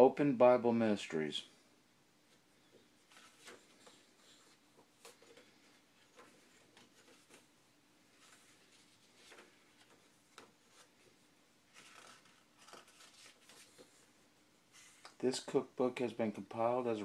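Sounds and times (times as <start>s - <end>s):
paper pages rustling: 3.0s - 7.5s, 8.1s - 14.1s.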